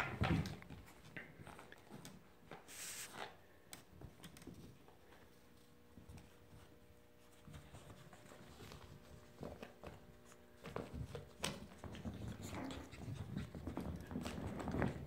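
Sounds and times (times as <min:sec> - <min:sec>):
puppies scuffling: 0:00.0 - 0:15.0
paw scrabbles and taps: 0:06.0 - 0:15.0.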